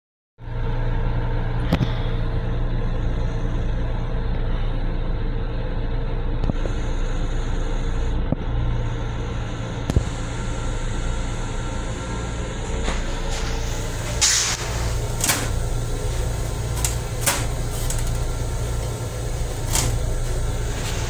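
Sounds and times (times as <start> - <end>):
electric railcar rumble and hum: 0.4 - 21.0.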